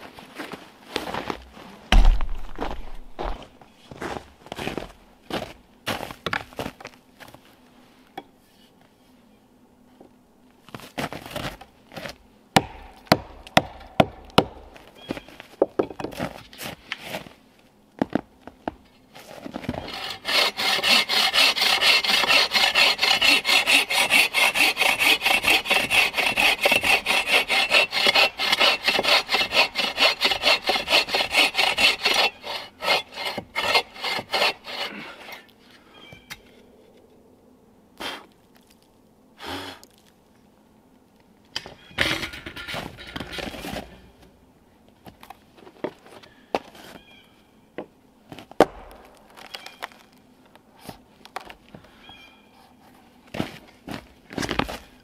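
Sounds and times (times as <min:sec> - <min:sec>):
hand saw cutting wood: 0:12.0 - 0:14.7, 0:19.6 - 0:35.5
sharp knocks: 0:12.6 - 0:14.7.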